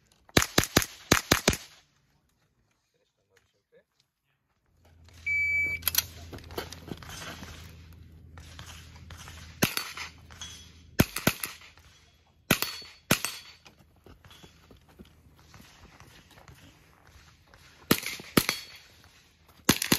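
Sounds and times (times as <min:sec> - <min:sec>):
rifle shots: 0:00.4 - 0:01.8, 0:08.4 - 0:10.4, 0:11.0 - 0:13.6, 0:17.6 - 0:19.0, 0:19.6 - 0:19.9
shot timer beep: 0:05.2 - 0:06.0.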